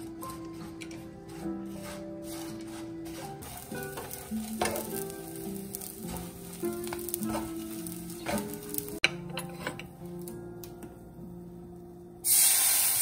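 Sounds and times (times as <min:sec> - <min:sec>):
wooden spatula scraping pan: 0:00.0 - 0:09.9
fish sizzling in oil: 0:03.1 - 0:09.0, 0:12.2 - 0:13.0.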